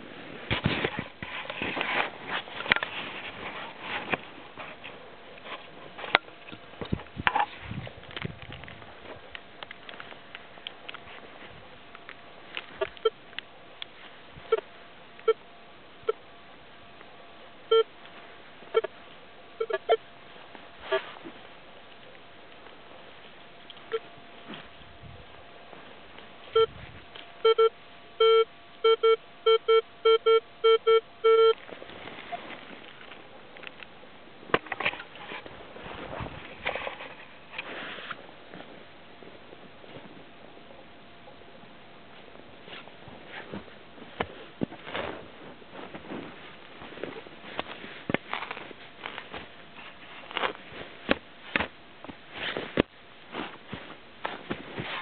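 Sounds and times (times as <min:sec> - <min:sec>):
rustling: 0:00.0 - 0:13.1, 0:31.6 - 0:33.8, 0:34.4 - 0:40.3, 0:42.1 - 0:55.0
metal detector beeps: 0:17.7 - 0:17.9, 0:19.6 - 0:20.0, 0:26.5 - 0:26.8, 0:27.4 - 0:31.6
spade scraping soil and roots: 0:34.8 - 0:38.2.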